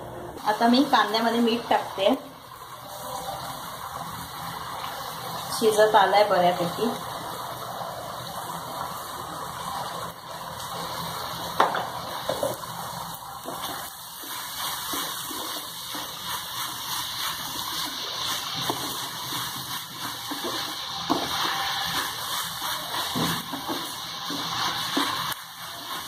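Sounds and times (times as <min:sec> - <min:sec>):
onions sizzling in oil: 0:00.4 - 0:26.0
spatula scraping a pan: 0:13.4 - 0:26.0.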